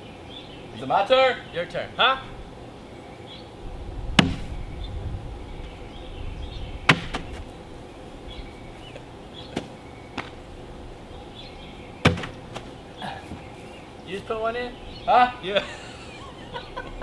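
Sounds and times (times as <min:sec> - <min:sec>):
bean bags landing with knocks: 0:12.0 - 0:13.5.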